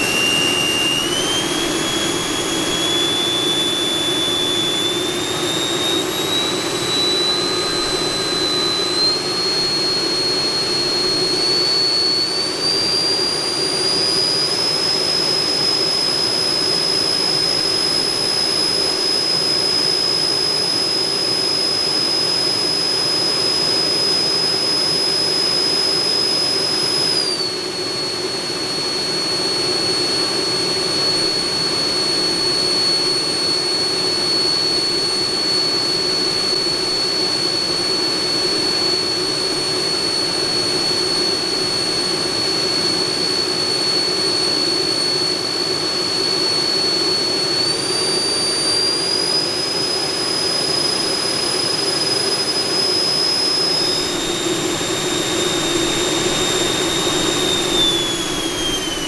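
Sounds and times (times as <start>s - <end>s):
electric fans whining: 0.0s - 22.0s, 47.2s - 59.0s.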